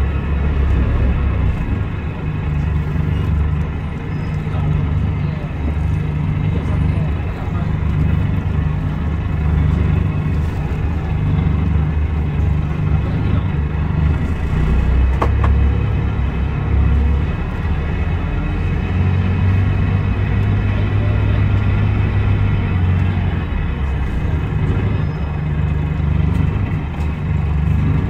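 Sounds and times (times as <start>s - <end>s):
diesel engine running: 0.0s - 28.0s.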